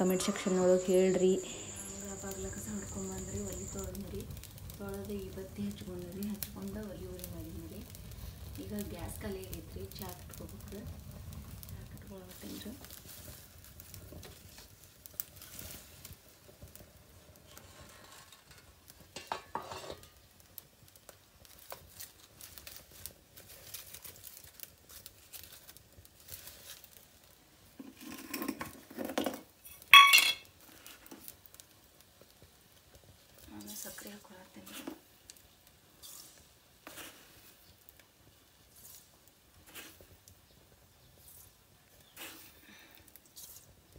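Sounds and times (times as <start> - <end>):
metal utensils clinking and scraping: 17.5 - 20.2, 30.0 - 30.5
ringing metal clang: 30.0 - 30.4.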